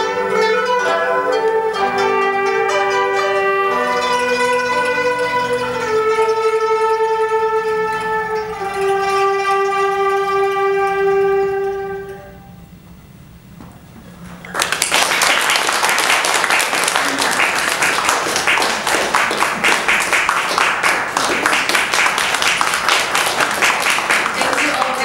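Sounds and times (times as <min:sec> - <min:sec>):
string ensemble held note: 0:00.0 - 0:12.8, 0:15.0 - 0:25.0
audience applause: 0:14.4 - 0:25.0.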